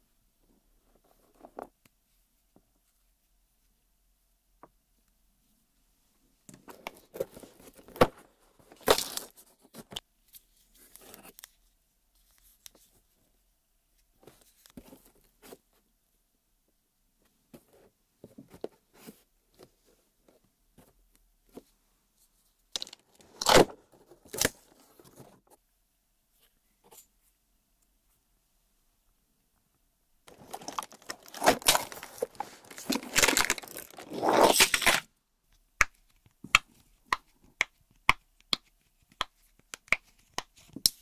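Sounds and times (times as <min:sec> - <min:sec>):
cardboard tearing: 0:30.3 - 0:35.0.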